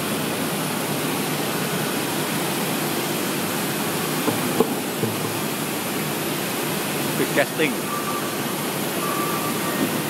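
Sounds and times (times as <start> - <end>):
foundry floor roar: 3.6 - 6.5
faint knocks: 4.3 - 5.6.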